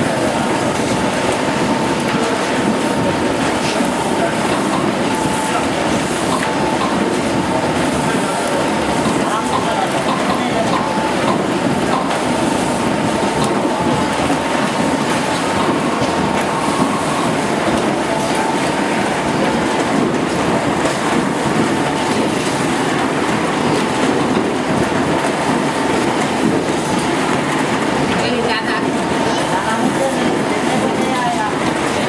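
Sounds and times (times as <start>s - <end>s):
faint machine whine: 0.0s - 22.4s.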